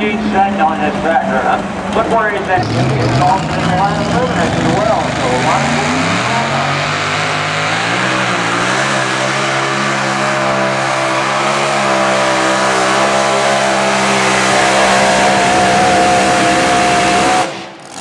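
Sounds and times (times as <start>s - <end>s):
racing engine high-revving howl: 2.4s - 18.0s.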